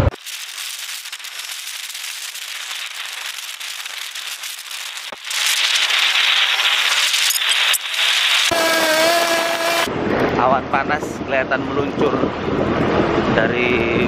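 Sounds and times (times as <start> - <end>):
wind and road noise on microphone: 5.0 - 14.0.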